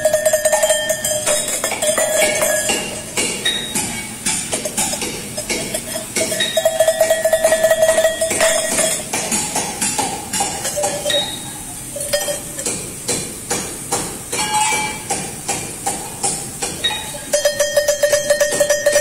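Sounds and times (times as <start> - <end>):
sheep bells clanking: 0.0 - 9.1, 10.5 - 12.6, 16.9 - 19.0.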